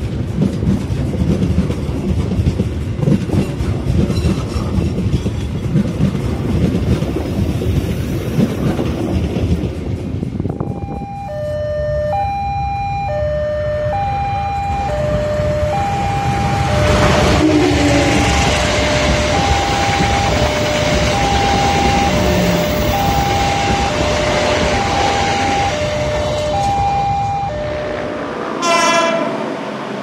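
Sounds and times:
passing train rumble: 0.0 - 30.0
two-tone level crossing alarm: 10.5 - 29.1.

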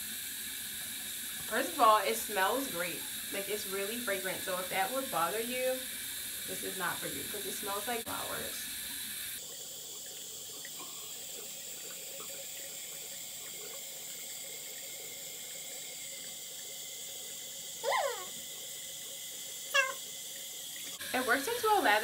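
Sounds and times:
brief pitch-sliding vocal sound: 17.8 - 18.3.

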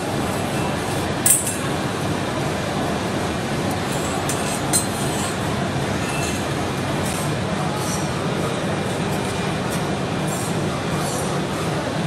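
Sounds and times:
steady background noise: 0.0 - 12.0
metal strips clinking on table: 1.2 - 1.7, 3.9 - 5.4.

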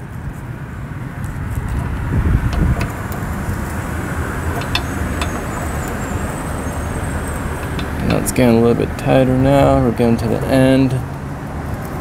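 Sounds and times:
ratchet wrench clicking: 4.4 - 8.5.

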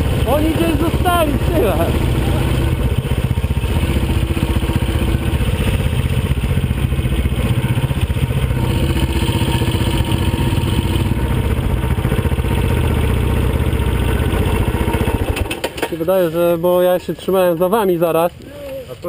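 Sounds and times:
motorcycle engines idling: 0.0 - 19.0.

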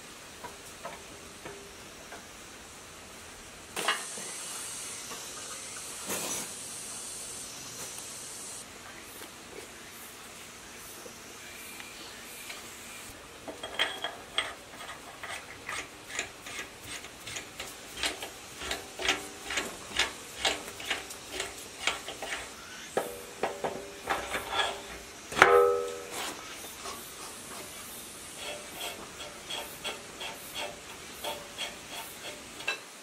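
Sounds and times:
loud ringing metal clank: 23.0 - 26.4.

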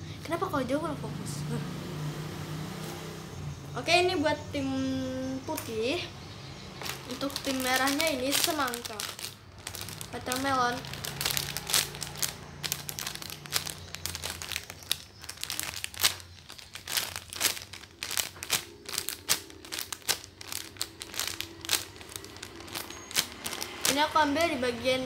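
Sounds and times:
plastic bag crinkling: 6.8 - 24.5.

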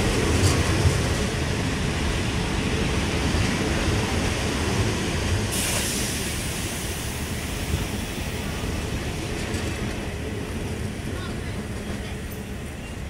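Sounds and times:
train rumbling: 0.0 - 13.0
sharp hiss: 5.5 - 8.4.

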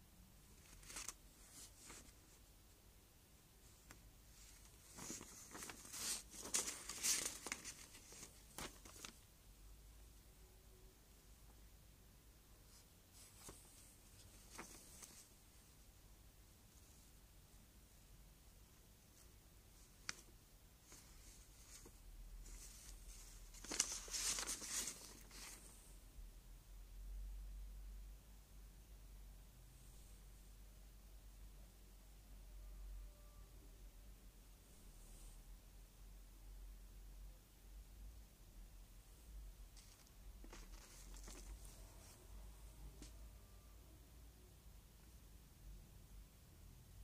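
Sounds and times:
paper page rustling: 0.6 - 2.4, 3.7 - 9.2, 13.2 - 15.4, 19.8 - 25.8, 39.8 - 42.2.

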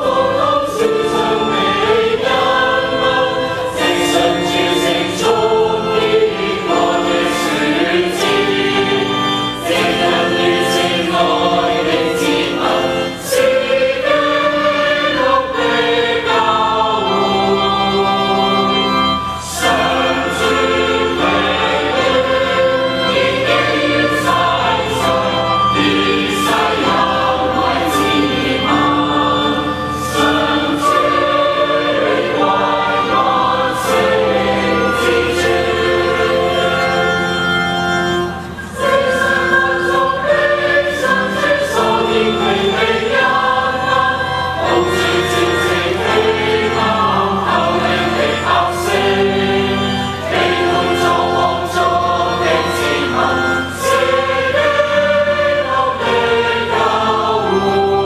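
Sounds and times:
crowd singing a hymn: 0.0 - 58.0.

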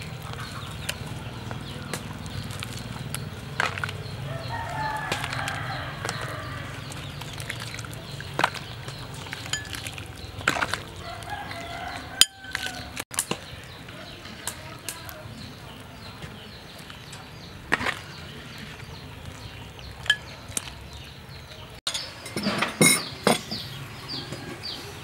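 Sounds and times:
chickens clucking: 0.0 - 21.8
rooster crowing: 4.3 - 6.9, 11.0 - 13.0.

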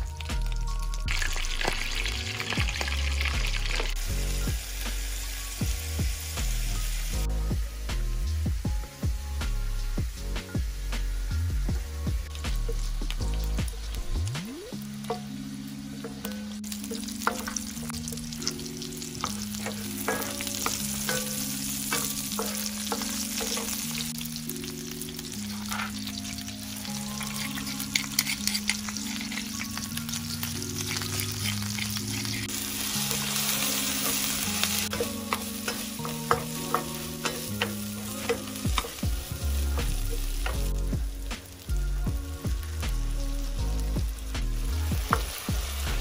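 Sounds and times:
crackles in oil: 0.0 - 5.6, 16.2 - 46.0
onions sizzling in hot oil: 0.0 - 46.0
wooden spatula scraping wok: 16.3 - 24.2, 25.2 - 40.9.

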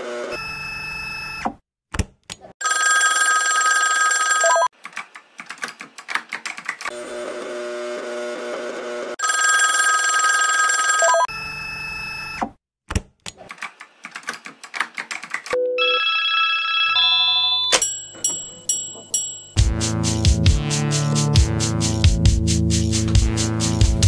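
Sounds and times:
high electronic ringing tone: 2.6 - 4.7, 9.2 - 12.4, 15.7 - 17.8.

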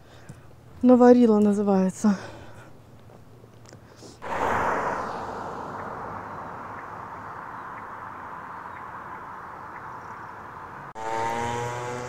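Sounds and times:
outdoor rushing noise: 4.2 - 9.5.

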